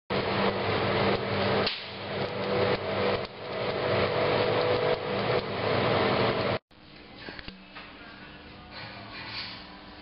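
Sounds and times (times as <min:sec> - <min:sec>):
steady roar with low hum: 0:00.1 - 0:06.6.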